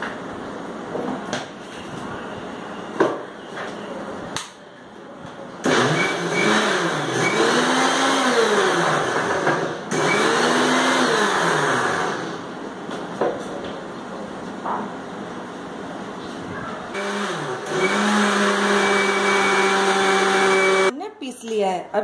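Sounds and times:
mixer grinder motor blending liquid: 0:05.6 - 0:12.4, 0:17.0 - 0:20.9.

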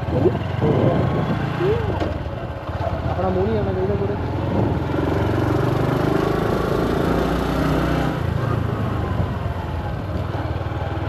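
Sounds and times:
vehicle engine running: 0:00.0 - 0:06.2
road noise: 0:00.0 - 0:11.0.

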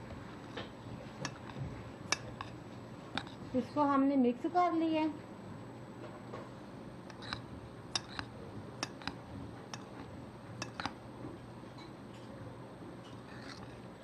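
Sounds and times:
faint steady hum: 0:00.0 - 0:14.0
clinks against mixing bowl: 0:08.0 - 0:09.9.

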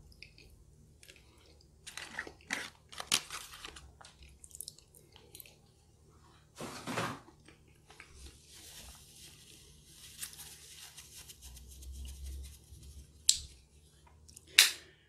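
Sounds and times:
paper napkin rustling: 0:08.1 - 0:13.2.

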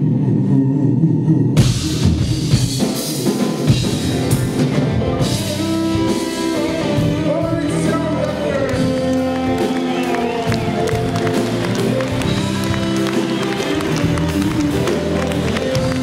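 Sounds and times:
drum kit and cymbals: 0:01.6 - 0:16.0
live rock band playing: 0:01.6 - 0:16.0
male lead vocal: 0:05.2 - 0:16.0.

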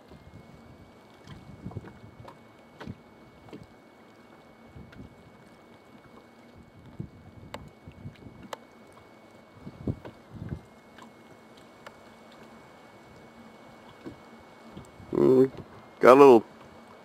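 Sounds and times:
water lapping: 0:00.0 - 0:17.0
wind buffeting microphone: 0:00.1 - 0:03.0, 0:06.6 - 0:08.5, 0:09.6 - 0:10.7.

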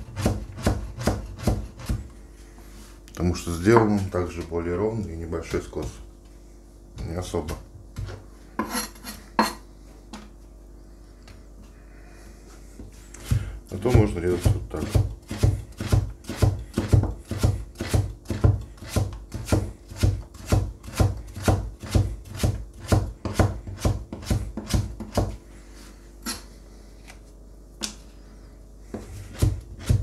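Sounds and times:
knife chopping on cutting board: 0:00.0 - 0:02.1, 0:13.2 - 0:25.4, 0:28.9 - 0:30.0.

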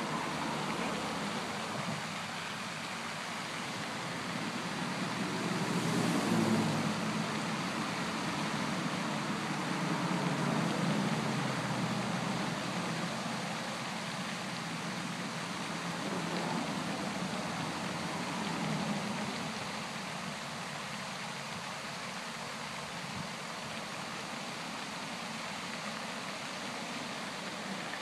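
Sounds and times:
road traffic noise: 0:00.0 - 0:28.0
vehicle passing: 0:04.1 - 0:12.9.

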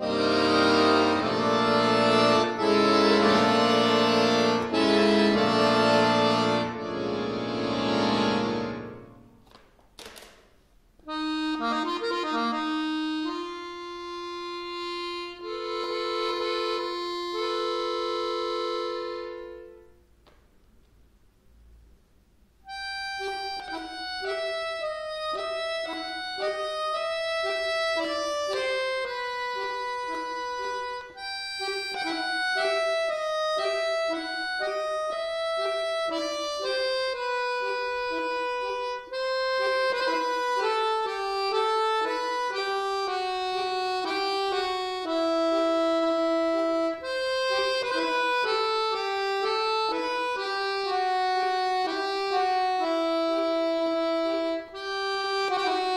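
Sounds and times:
button accordion playing: 0:00.0 - 0:09.4, 0:11.0 - 0:20.0, 0:22.6 - 0:55.9.

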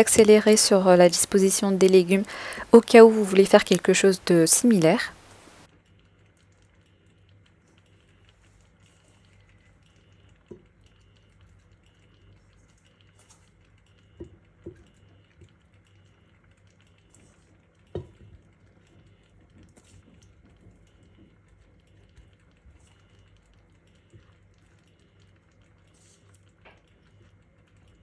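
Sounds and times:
low steady hum: 0:00.0 - 0:05.7.

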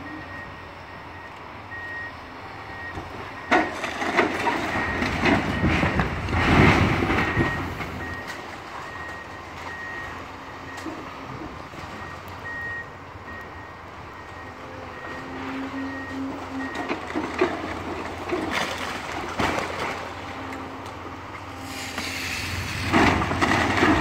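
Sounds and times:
backup alarm beeping: 0:07.2 - 0:11.0, 0:11.9 - 0:17.0
bricks crashing down: 0:22.8 - 0:24.0.

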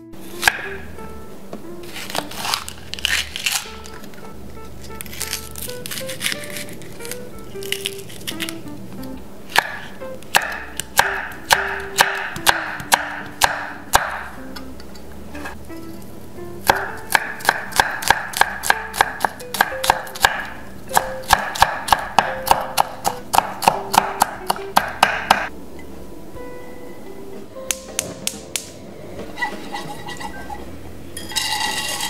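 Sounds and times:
knife chopping on wooden block: 0:00.4 - 0:00.7, 0:09.5 - 0:14.3, 0:16.6 - 0:25.5.

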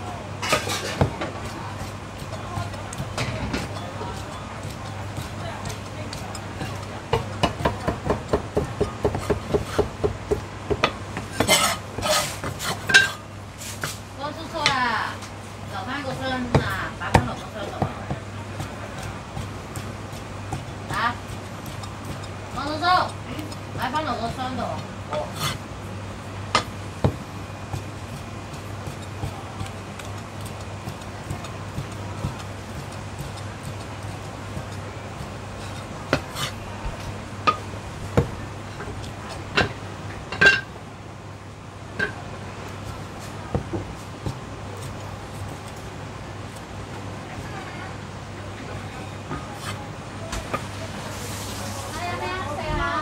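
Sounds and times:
blade scraping across a block: 0:11.4 - 0:12.8.

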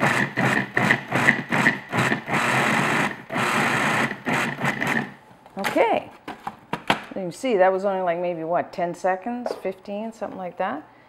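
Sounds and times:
food processor pulsing: 0:00.0 - 0:05.2.

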